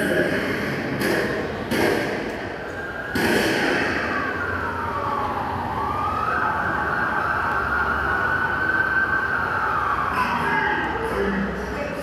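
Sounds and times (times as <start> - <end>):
siren wailing: 2.6 - 11.8.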